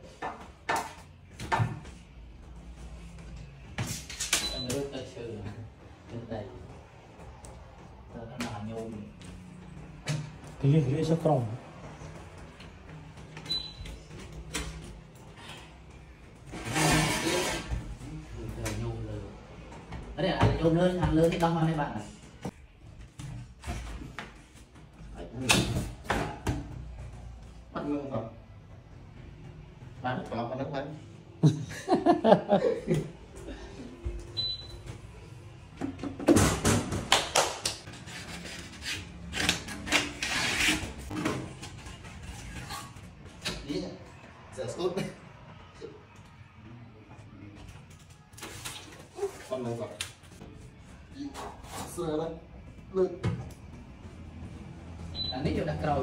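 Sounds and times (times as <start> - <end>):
hard material scraping and rubbing: 16.4 - 18.2, 37.9 - 43.2
wall panel scraping into frame: 16.5 - 17.7.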